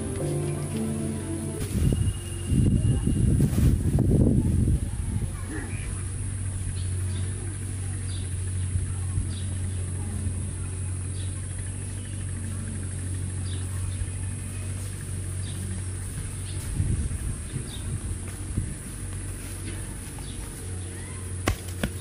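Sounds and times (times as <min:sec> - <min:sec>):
short high chirps: 0:00.0 - 0:03.3
low steady hum: 0:00.0 - 0:22.0.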